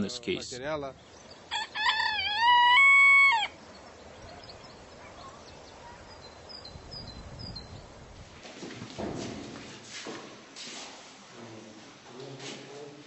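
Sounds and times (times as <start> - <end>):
rooster crowing: 1.5 - 3.6.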